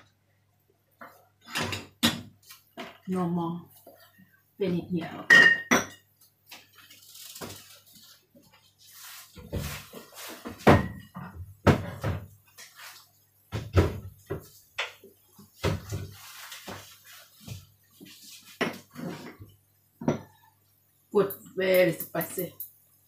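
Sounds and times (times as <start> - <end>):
kitchen knocks and thuds: 9.4 - 12.4, 13.5 - 15.0, 15.6 - 16.9.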